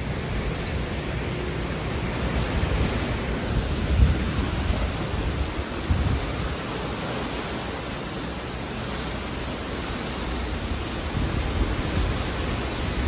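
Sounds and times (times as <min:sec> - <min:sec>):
heavy rain rushing: 0:00.0 - 0:13.0
low wind rumble: 0:00.0 - 0:13.0.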